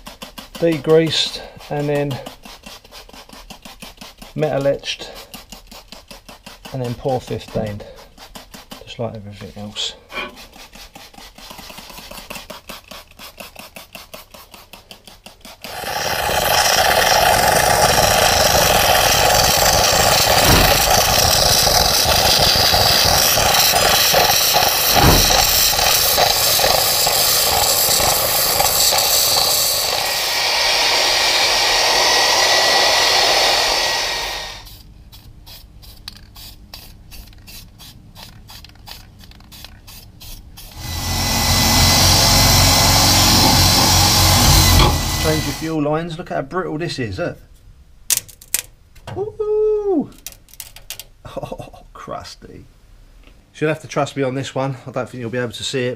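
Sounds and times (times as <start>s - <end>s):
rhythmic scrubbing strokes: 0.0s - 34.7s, 40.6s - 45.8s
electric spray gun hissing: 15.6s - 34.8s, 40.6s - 45.8s.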